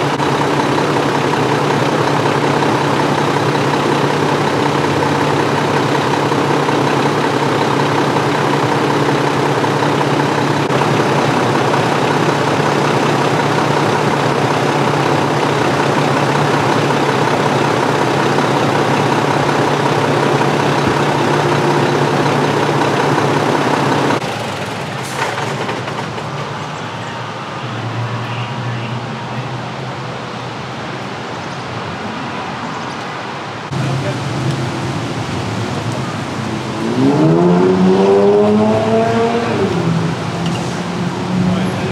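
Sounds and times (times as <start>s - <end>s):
truck diesel engine idling: 0.0s - 29.9s
street noise: 0.0s - 41.9s.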